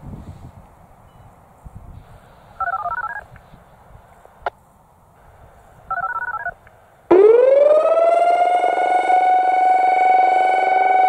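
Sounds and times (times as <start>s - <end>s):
touch-tone signalling tones: 2.6s - 3.3s, 5.9s - 6.6s
electronic siren rising: 7.1s - 11.0s.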